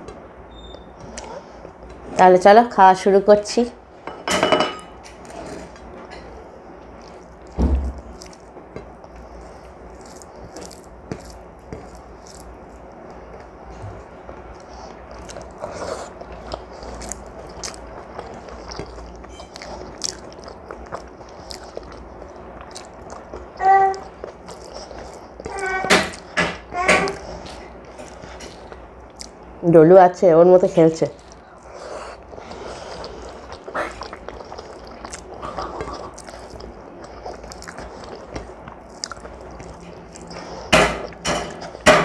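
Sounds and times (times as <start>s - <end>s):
person chewing food: 0.0s - 2.1s, 4.7s - 29.6s, 31.1s - 42.0s
thump: 7.6s - 8.0s.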